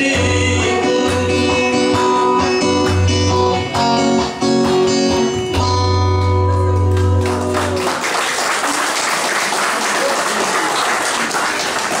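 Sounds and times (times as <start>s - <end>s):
electric guitar chord ringing: 1.7s - 7.8s
audience applauding: 6.3s - 12.0s.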